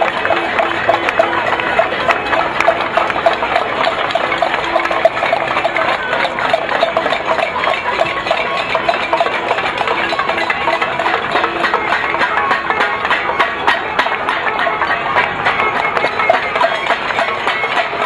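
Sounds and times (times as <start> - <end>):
pots and pans banging: 0.0 - 18.0
car horns honking: 8.0 - 18.0.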